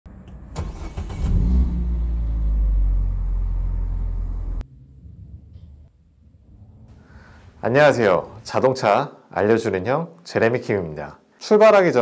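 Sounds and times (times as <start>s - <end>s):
car engine idling: 0.5s - 6.3s.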